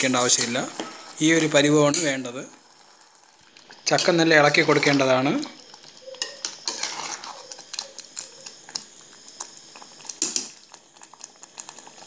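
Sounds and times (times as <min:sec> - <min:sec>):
ladle scraping and clinking pot: 0:06.1 - 0:08.3.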